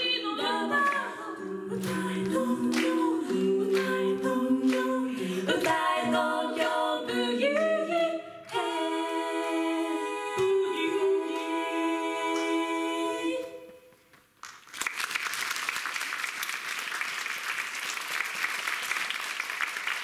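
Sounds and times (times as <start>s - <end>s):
women singing in close harmony: 0.0s - 13.9s.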